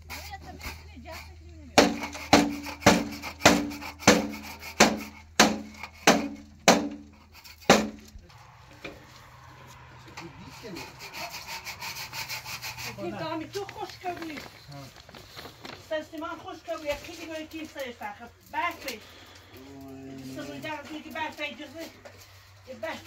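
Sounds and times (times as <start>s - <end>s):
sharp knocks on wood: 1.8s - 7.0s, 7.6s - 8.1s.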